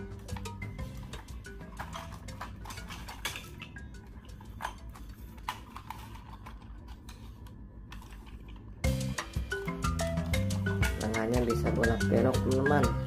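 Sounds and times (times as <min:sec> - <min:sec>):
plastic toy clicks and clatter: 0:00.2 - 0:03.6, 0:04.3 - 0:08.6.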